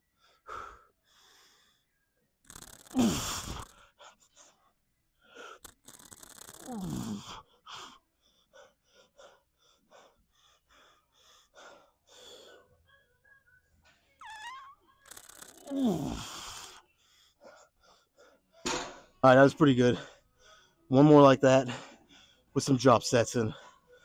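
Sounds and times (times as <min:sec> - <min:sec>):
man panting heavily: 0:00.2 - 0:01.8, 0:06.7 - 0:12.7, 0:19.8 - 0:22.6, 0:23.4 - 0:24.0
man grunting with effort: 0:02.9 - 0:03.6.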